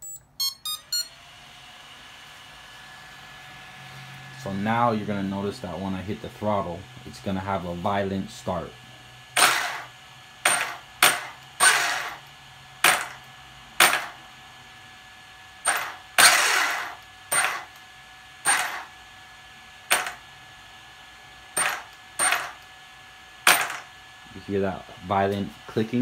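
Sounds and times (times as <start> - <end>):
motor jerking drivetrain clicks: 9.4 - 14.1, 15.7 - 17.8, 18.5 - 18.9.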